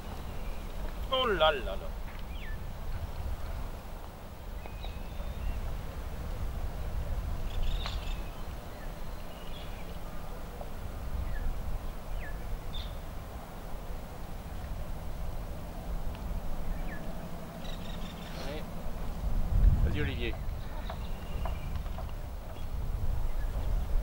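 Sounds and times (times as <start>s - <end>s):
low rumble: 1.8s - 24.0s
bird chirps: 2.2s - 2.6s, 4.6s - 5.7s, 7.4s - 10.3s, 12.1s - 13.1s, 16.6s - 18.4s, 20.2s - 23.7s.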